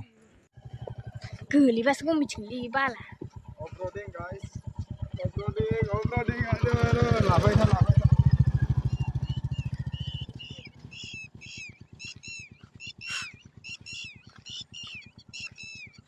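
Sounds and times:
motorcycle engine thumping: 0.6 - 12.8
high chirping animal calls: 4.4 - 16.0.

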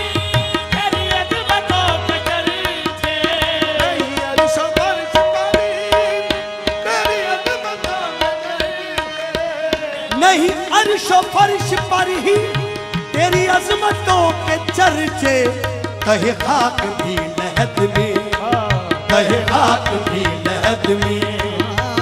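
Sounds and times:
harmonium melody: 0.0 - 22.0.

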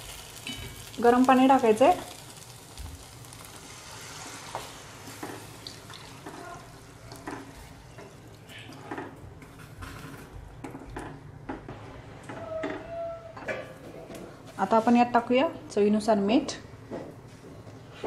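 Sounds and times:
water pouring into a pan: 2.2 - 7.1.

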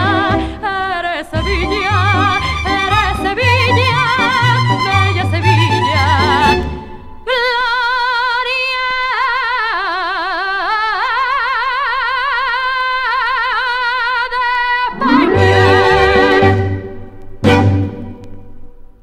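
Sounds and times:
woman singing with vibrato: 0.0 - 6.6, 7.2 - 16.8
orchestra playing: 14.9 - 18.0.

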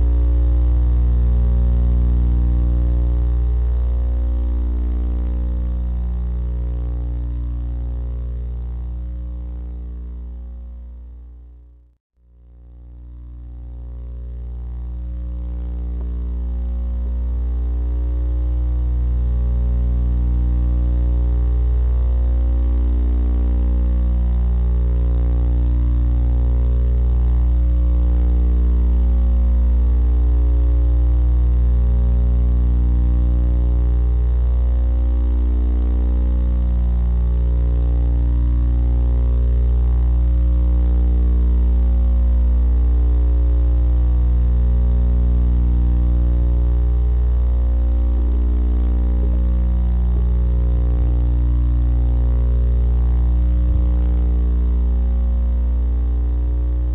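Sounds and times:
low pulsing drone: 12.2 - 56.9.

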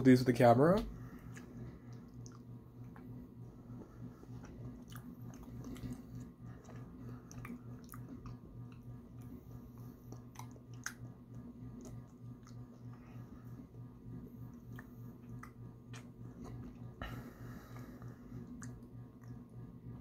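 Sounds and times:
steady low hum: 0.0 - 20.0
person chewing with mouth clicks: 1.1 - 3.1, 4.0 - 13.2, 14.5 - 17.0, 17.7 - 19.6.

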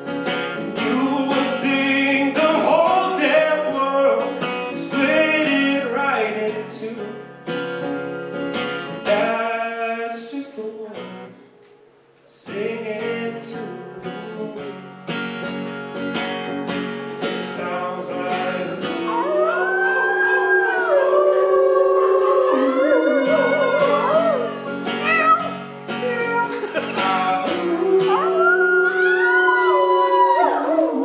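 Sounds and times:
strummed acoustic guitar: 0.0 - 11.4, 12.4 - 20.1, 21.2 - 29.0
person singing: 0.8 - 7.1, 17.3 - 31.0
audience howling along: 18.8 - 25.4, 26.2 - 31.0.

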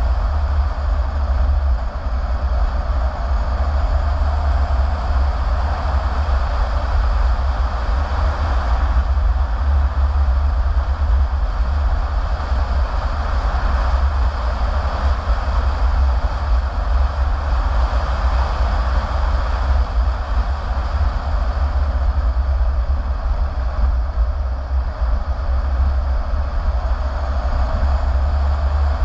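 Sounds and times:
car road noise rumble: 0.0 - 29.0.

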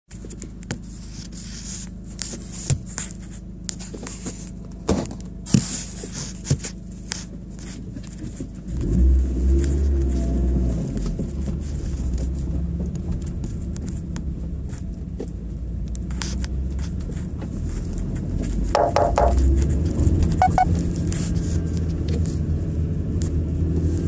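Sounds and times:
car engine droning: 0.1 - 24.0
sharp clicks and knocks: 10.9 - 22.3.

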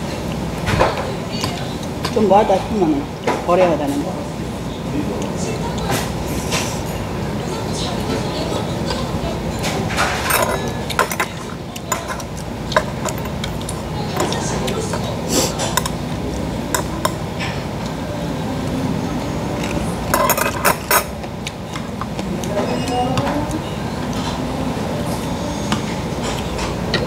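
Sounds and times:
low background hum: 0.0 - 27.0
chopsticks and spoon clinking bowls: 8.0 - 18.0, 19.5 - 24.5, 25.8 - 27.0.

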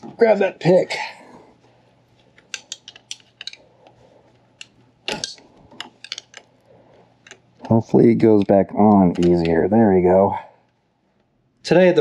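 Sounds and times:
metal tool clicks and taps: 2.5 - 3.6.

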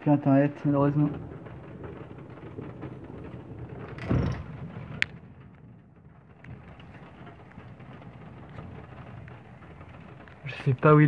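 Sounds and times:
rain ticking on glass: 0.0 - 11.0
skylight thump: 1.2 - 8.8.

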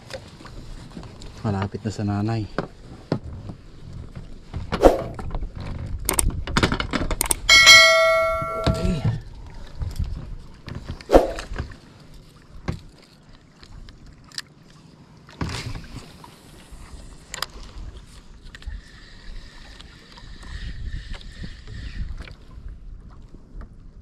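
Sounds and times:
metal clang: 7.5 - 9.1.

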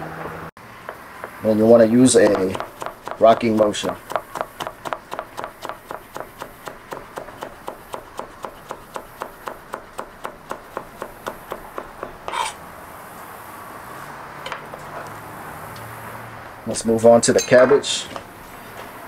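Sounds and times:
knife chopping on plastic board: 2.2 - 12.4.

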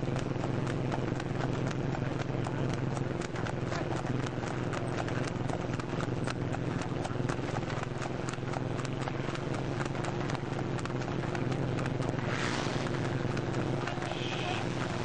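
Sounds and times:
horse hooves clip-clopping on pavement: 0.0 - 15.0
steady low hum: 0.0 - 15.0.

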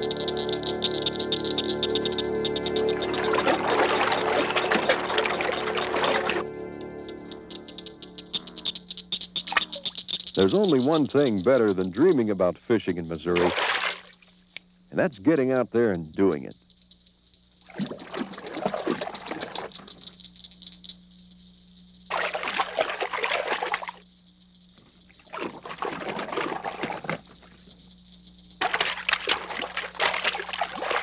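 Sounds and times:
faint steady hum: 0.0 - 31.0
water splashing and rushing: 3.1 - 6.4, 13.4 - 14.2, 22.1 - 24.0, 28.6 - 31.0.

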